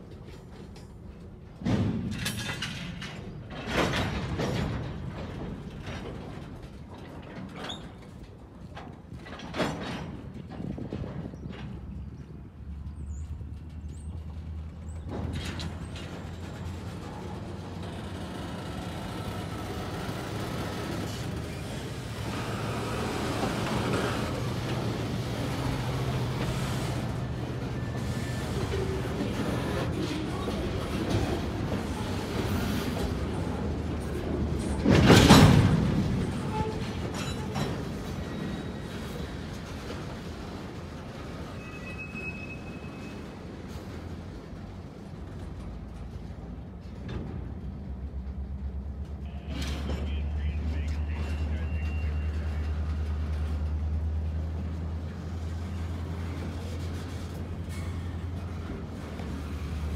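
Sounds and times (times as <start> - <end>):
wheels rumbling on rail: 0.0 - 59.9
diesel locomotive droning: 12.3 - 59.9.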